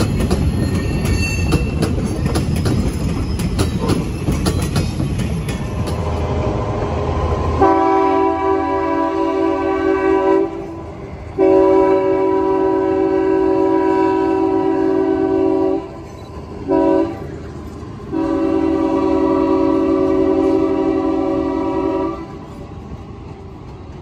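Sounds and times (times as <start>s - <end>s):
freight train rumbling past: 0.0s - 24.0s
locomotive air horn blasts: 7.6s - 17.3s, 18.1s - 22.4s.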